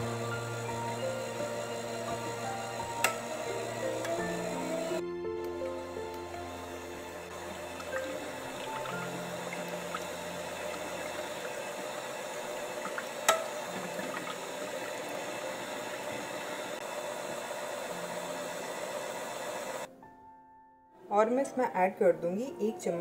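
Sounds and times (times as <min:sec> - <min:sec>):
electric hand mixer running: 0:00.0 - 0:19.9.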